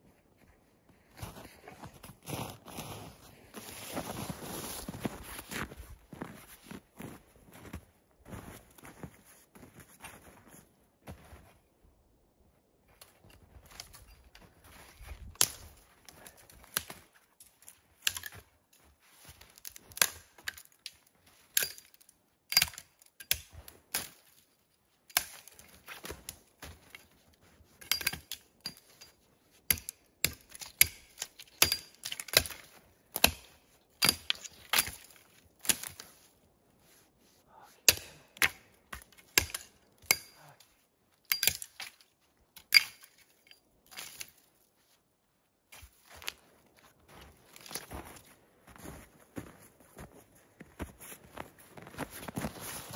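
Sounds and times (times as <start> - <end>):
axe chopping wood: 29.7 - 36.0, 37.8 - 40.5.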